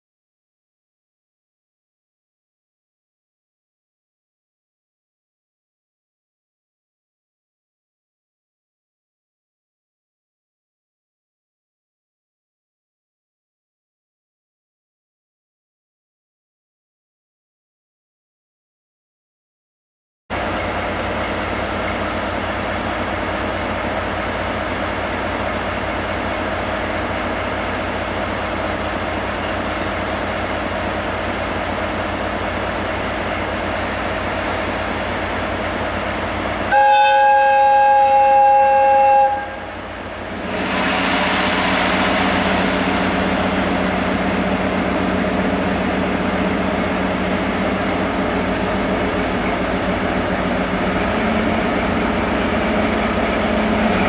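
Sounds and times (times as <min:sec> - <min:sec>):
diesel locomotive engine: 0:20.3 - 0:54.0
two-tone locomotive horn: 0:36.6 - 0:44.9.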